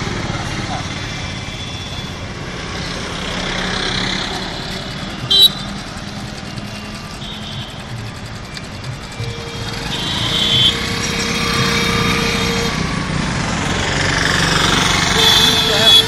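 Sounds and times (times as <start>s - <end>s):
motorcycle engine running: 0.0s - 16.0s
road traffic: 0.0s - 16.0s
vehicle horn toots: 5.2s - 5.8s, 9.1s - 13.1s, 15.1s - 16.0s.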